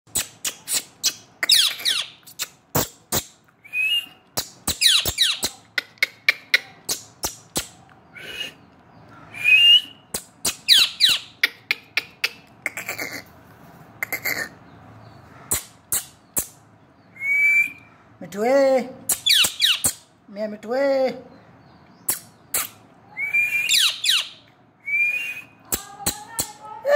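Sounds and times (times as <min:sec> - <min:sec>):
parakeet harsh calls: 0:01.1 - 0:02.2, 0:04.7 - 0:05.6, 0:23.7 - 0:24.4.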